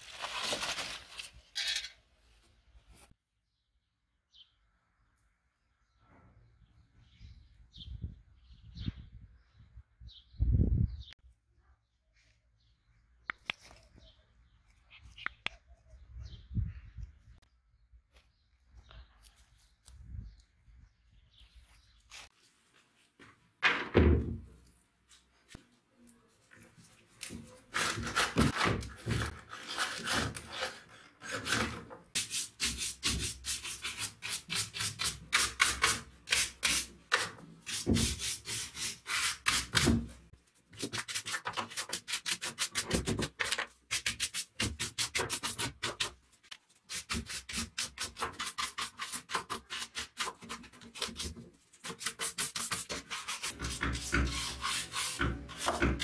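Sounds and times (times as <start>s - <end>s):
stiff brush scrubbing: 26.6s - 56.0s.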